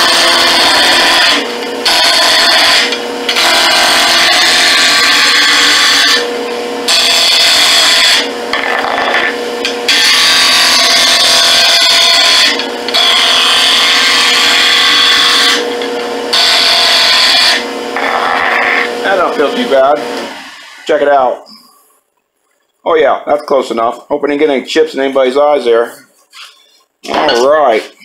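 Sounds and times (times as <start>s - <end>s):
lathe motor hum: 0.0s - 21.0s
tool cutting wood on lathe: 0.0s - 21.2s.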